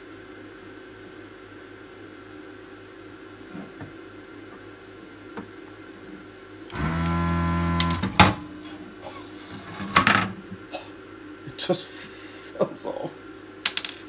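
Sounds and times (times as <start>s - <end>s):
desoldering pump humming: 3.0s - 13.8s.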